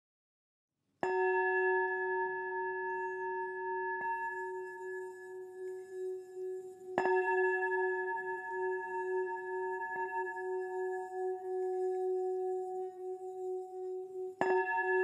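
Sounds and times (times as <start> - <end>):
singing bowl ringing: 1.0 - 15.0.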